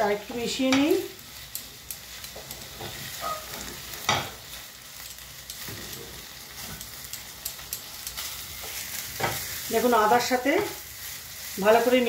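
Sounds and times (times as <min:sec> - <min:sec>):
low frying sizzle: 0:00.0 - 0:12.0
spatula scraping frying pan: 0:02.0 - 0:04.6.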